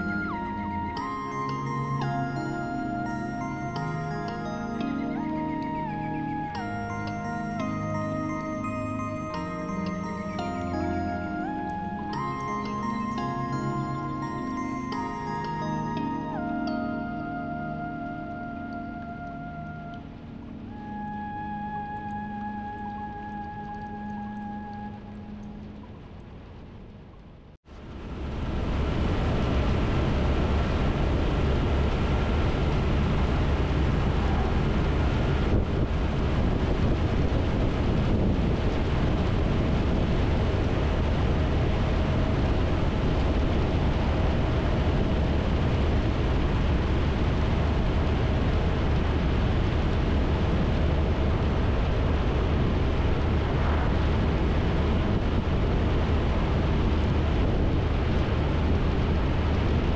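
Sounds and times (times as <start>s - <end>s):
wind rush over microphone: 27.8s - 59.9s.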